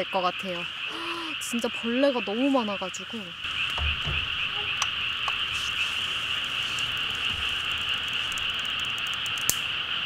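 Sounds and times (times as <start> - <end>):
chorus of frogs calling: 0.0 - 10.0
sharp click: 8.9 - 9.6.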